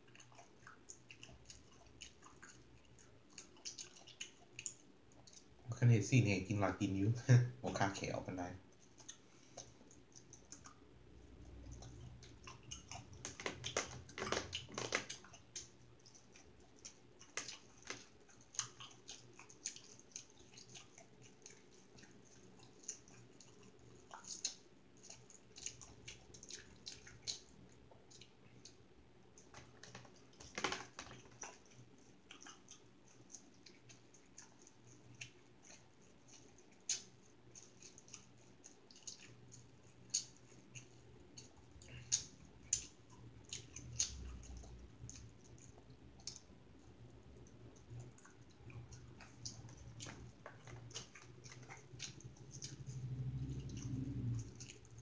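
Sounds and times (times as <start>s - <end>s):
person chewing: 0.0s - 5.6s, 8.6s - 55.0s
faint hum: 0.0s - 55.0s
sharp clicks and smacks: 11.4s - 55.0s.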